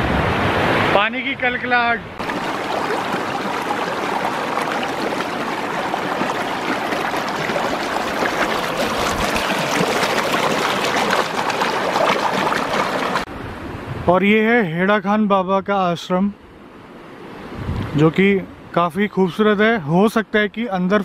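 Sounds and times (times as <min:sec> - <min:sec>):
river water babbling: 0:02.2 - 0:13.3.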